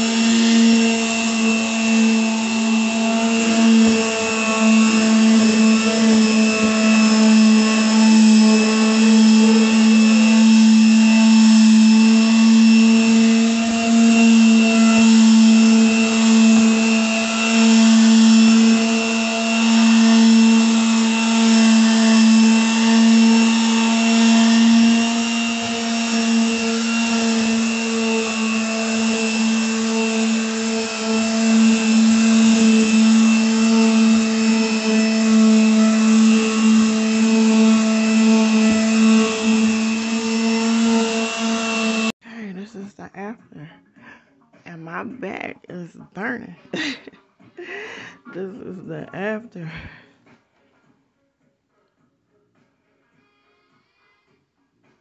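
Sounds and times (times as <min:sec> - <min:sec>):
electric sander on wooden floor: 0:00.0 - 0:42.2.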